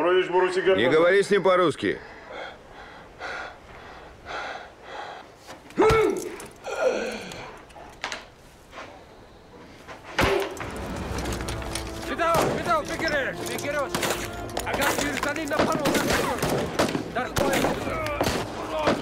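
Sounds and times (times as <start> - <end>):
sharp crack: 13.9 - 19.0.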